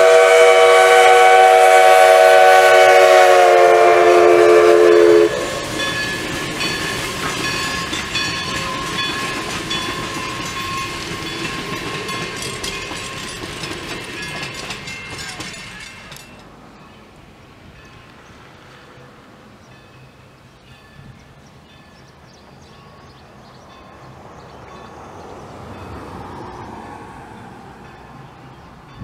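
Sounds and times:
steam locomotive whistle: 0.0 - 6.3
train wheels clicking over rail joints: 5.4 - 16.6.

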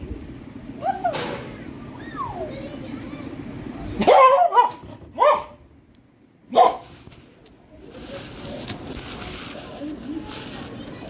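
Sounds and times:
dog barking: 4.0 - 5.6, 6.5 - 6.9.

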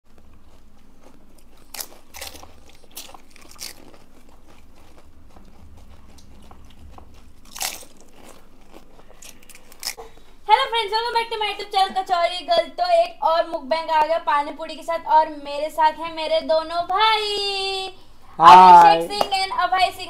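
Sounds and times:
crisp shells crunching: 0.5 - 10.0.

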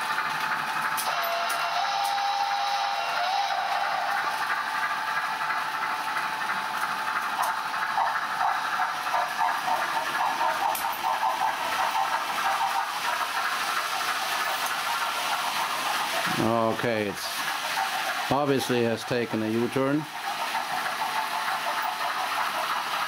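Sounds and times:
locomotive chuffing: 0.0 - 23.0
steam hiss: 1.0 - 5.6, 7.0 - 23.0.

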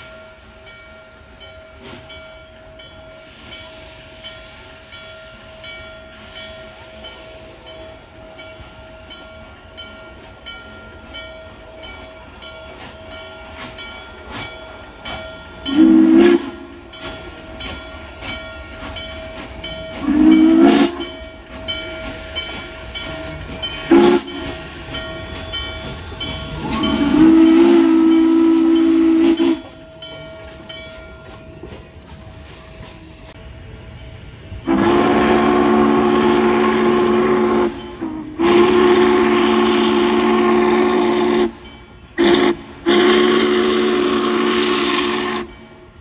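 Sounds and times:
train running with clicking: 0.0 - 46.0
steam locomotive whistle: 15.6 - 17.2, 19.4 - 30.2, 34.6 - 45.8.

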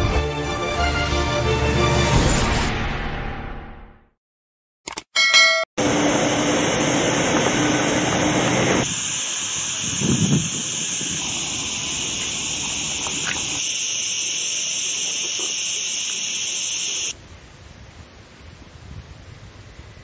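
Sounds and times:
short chime: 5.2 - 5.7
steady high hiss: 8.8 - 20.0.

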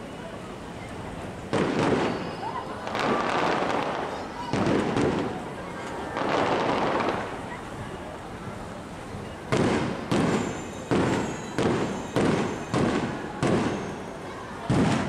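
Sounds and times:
fireworks crackling rush: 0.0 - 15.0
fireworks sharp bangs: 1.4 - 7.6, 9.5 - 15.0.

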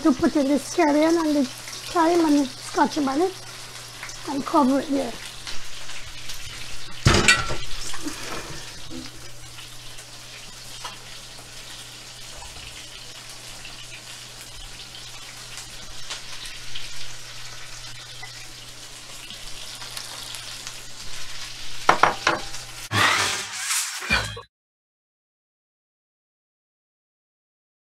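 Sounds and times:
food sizzling: 0.0 - 24.4
cookware clattering: 7.0 - 8.0, 21.9 - 22.6.

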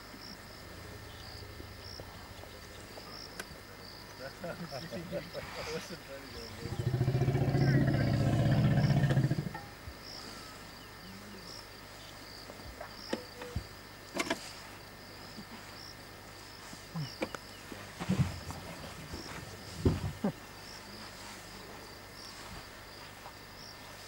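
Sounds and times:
insects chirping: 0.0 - 24.0
loud low pulsing drone: 0.5 - 3.2.

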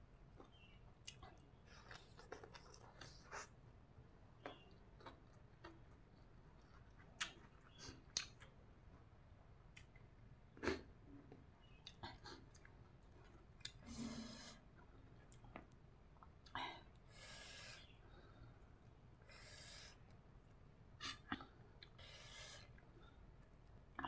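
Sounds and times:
chewing clicks: 6.6 - 8.6
person breathing: 16.6 - 20.0.

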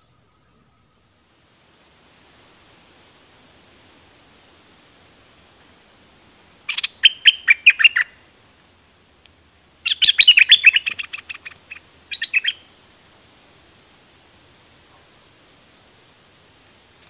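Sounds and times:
bird chattering song: 6.4 - 8.2, 9.8 - 12.7.

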